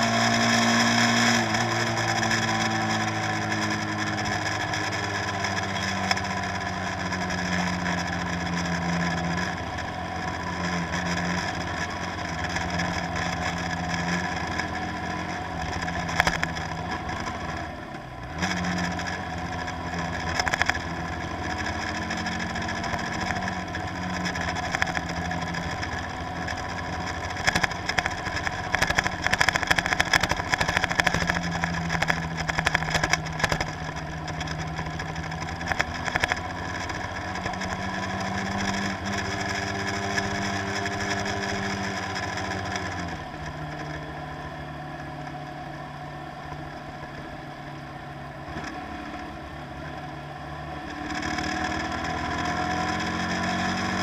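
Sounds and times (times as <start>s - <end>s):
crackling noise: 0.0s - 54.0s.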